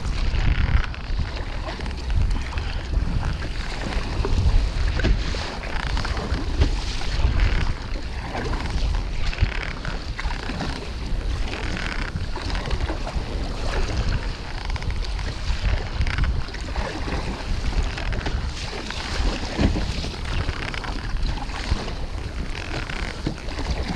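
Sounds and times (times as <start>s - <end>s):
water splashing around kayak: 0.0s - 23.9s
wind buffeting microphone: 0.0s - 23.9s.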